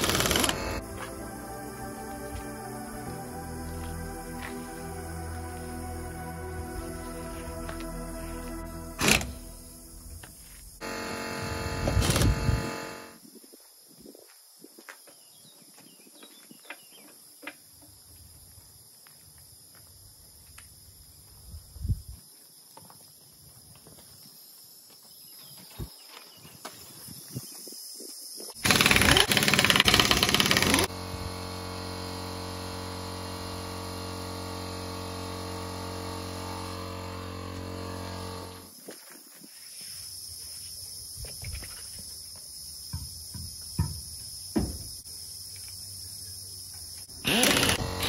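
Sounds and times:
pneumatic impact wrench: 0.0 - 0.8, 9.0 - 9.5, 10.8 - 13.2, 28.6 - 38.7, 47.1 - 48.0
air compressor motor humming: 0.0 - 2.4, 4.3 - 13.2, 28.6 - 38.7, 47.1 - 48.0.

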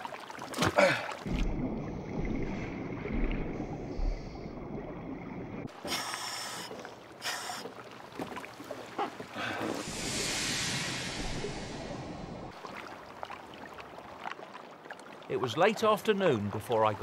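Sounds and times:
water splashing against boat: 0.0 - 17.0
wind: 0.0 - 17.0
dull underwater thumps: 0.5 - 5.7.

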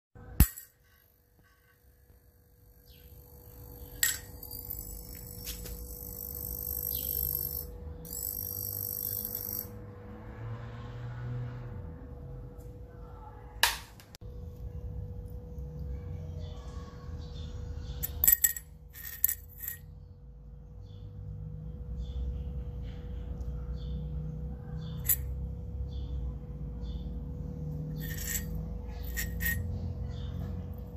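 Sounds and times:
low steady hum: 0.2 - 10.0, 14.2 - 30.9
lamp electrical buzz and sizzle: 0.4 - 9.7.

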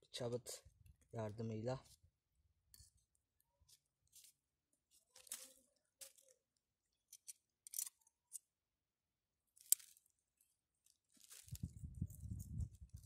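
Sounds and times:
plastic bag crinkling: 4.1 - 6.4, 10.8 - 12.0.

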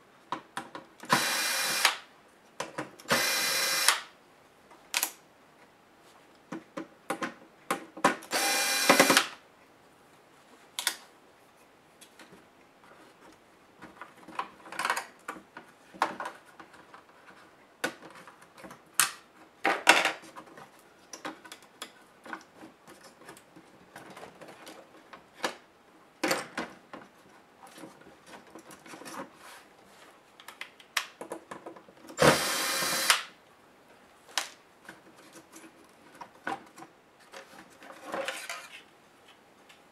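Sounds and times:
electric screwdriver whirring: 1.1 - 2.0, 3.1 - 4.1, 8.3 - 9.3, 32.2 - 33.3
plastic parts clicking and tapping: 13.8 - 25.6, 30.4 - 32.2.

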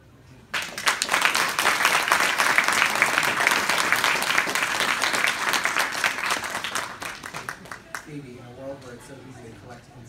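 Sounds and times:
audience applauding: 0.5 - 8.2.

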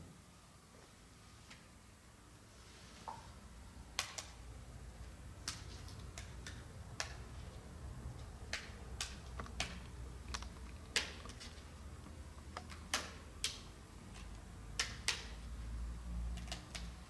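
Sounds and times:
wafers snapping and cracking: 8.2 - 11.7, 12.4 - 15.4.

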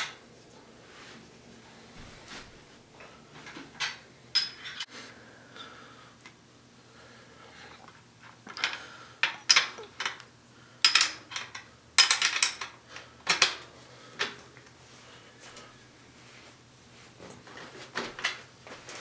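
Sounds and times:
metal clinking and clanking: 3.4 - 4.9.

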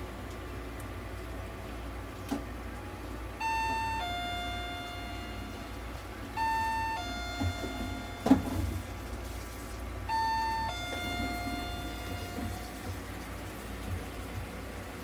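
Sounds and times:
steady low hum: 0.0 - 15.0
electronic two-tone chime: 3.4 - 5.8, 6.4 - 8.8, 10.1 - 12.8.

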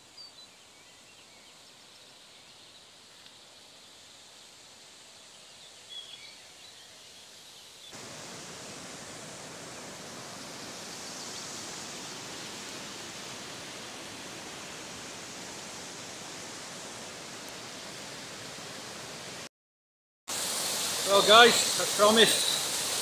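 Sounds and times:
fast-flowing river rushing: 8.0 - 17.4, 20.3 - 23.0.

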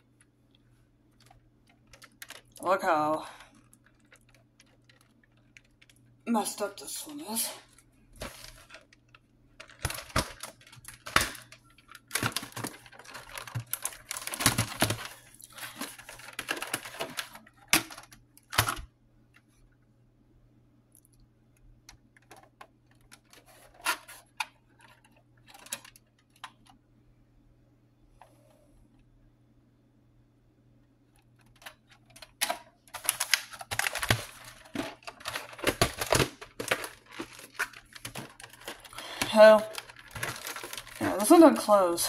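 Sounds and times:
plastic case clicks and rattles: 1.2 - 2.6, 8.2 - 18.9, 21.9 - 26.8, 31.2 - 41.1.

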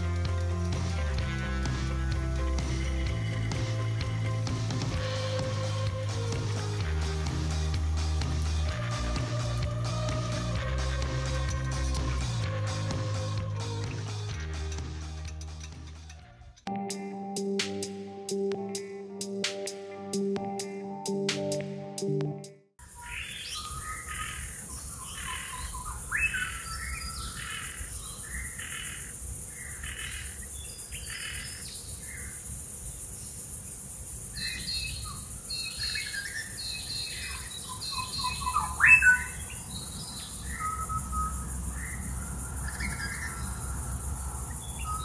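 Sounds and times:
high-pitched insect hiss: 22.8 - 45.0
birds chirping and calling: 22.9 - 32.4, 34.4 - 45.0.

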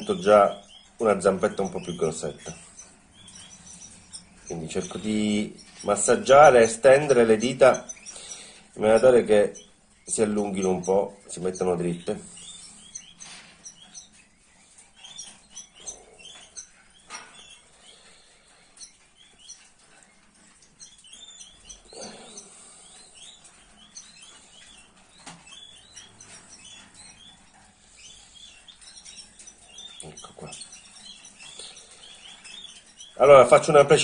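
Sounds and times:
nestlings peeping: 0.0 - 34.0.

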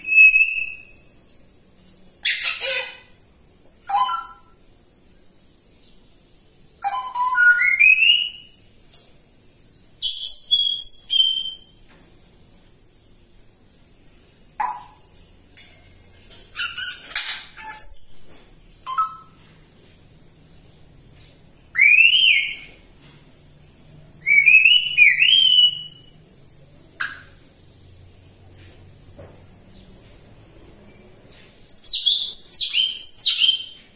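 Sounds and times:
parrot whistling: 3.9 - 4.5, 18.9 - 19.3.

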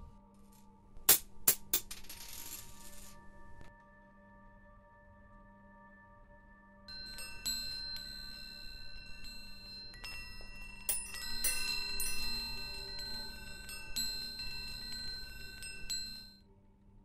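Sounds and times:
metal chimes ringing: 6.9 - 16.4.

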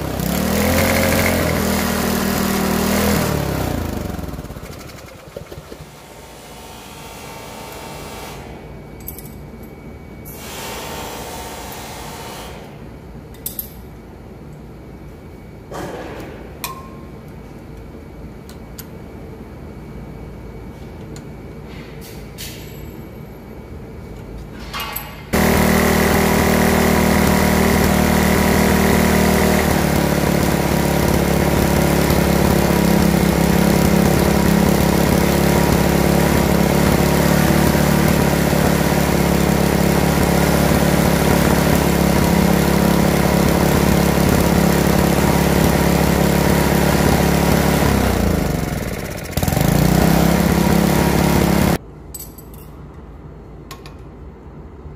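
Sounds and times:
small petrol engine running fast: 0.0 - 6.0, 25.4 - 51.8.

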